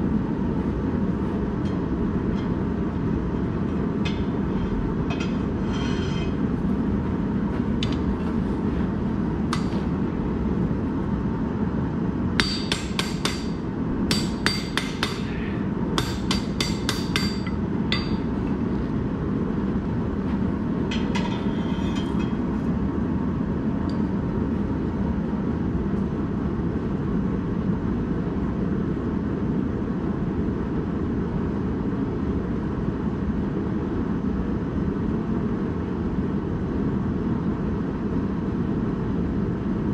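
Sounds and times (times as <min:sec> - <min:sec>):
hammer striking steel: 0:09.5 - 0:09.9, 0:12.4 - 0:15.4, 0:16.0 - 0:18.3.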